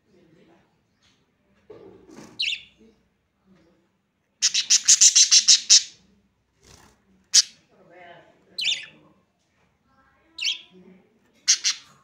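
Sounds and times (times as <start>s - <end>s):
budgerigars chirping: 4.4s - 6.0s, 7.3s - 7.5s, 8.6s - 9.0s, 11.5s - 12.0s.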